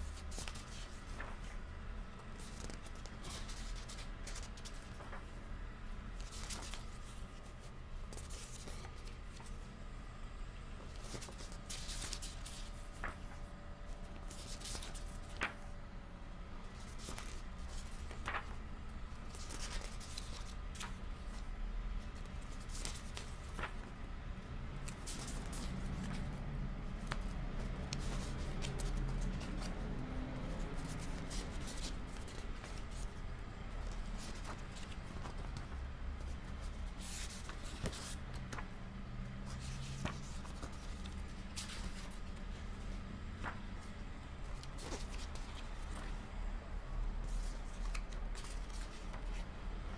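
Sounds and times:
low steady hum: 0.0s - 49.9s
book pages turning: 0.1s - 5.5s, 6.2s - 9.6s, 10.8s - 15.7s, 16.6s - 24.0s, 24.7s - 46.3s, 47.2s - 49.9s.

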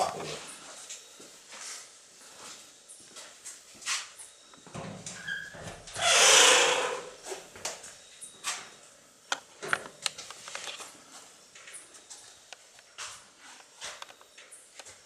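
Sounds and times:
footsteps: 0.0s - 4.8s, 9.7s - 14.2s.

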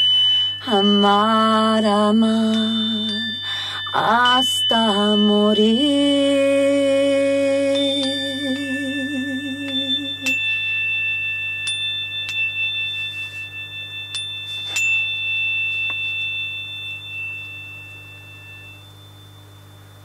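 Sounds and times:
high metallic ringing tones: 0.0s - 20.0s
low hum: 0.0s - 20.0s.

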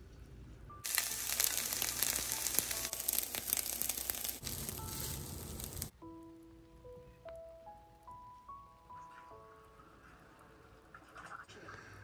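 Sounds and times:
fried rice sizzling in frying pan: 0.8s - 5.9s.

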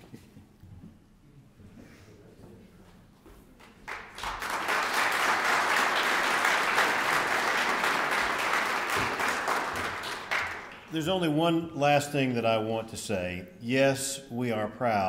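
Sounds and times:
audience applause: 3.8s - 11.0s.

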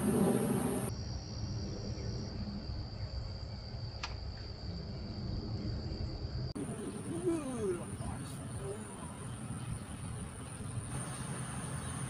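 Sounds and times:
low rumble: 0.0s - 0.9s
insects trilling: 0.0s - 12.0s.

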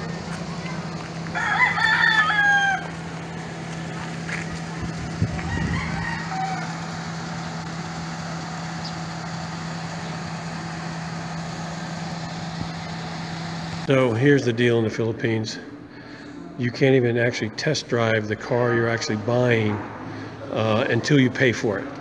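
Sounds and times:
steady low hum: 0.0s - 22.0s
rooster crowing: 1.3s - 3.1s, 5.3s - 7.2s.

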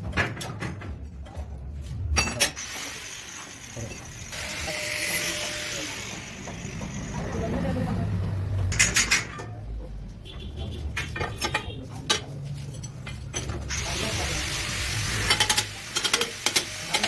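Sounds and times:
metal clinks and knocks: 10.9s - 13.7s.

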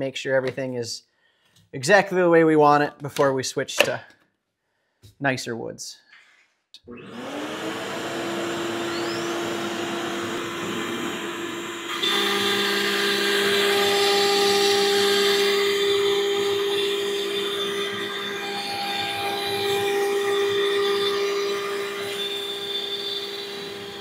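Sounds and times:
router motor whining: 6.9s - 24.0s.

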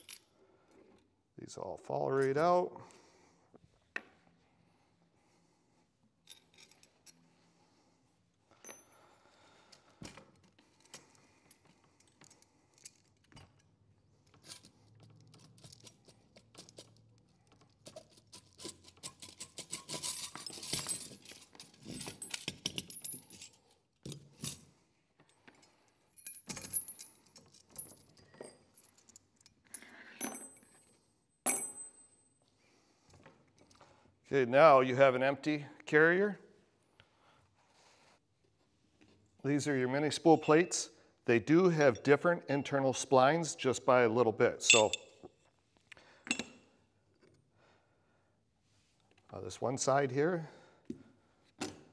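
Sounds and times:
steel parts clinking and rattling: 10.4s - 24.7s, 44.6s - 45.3s.

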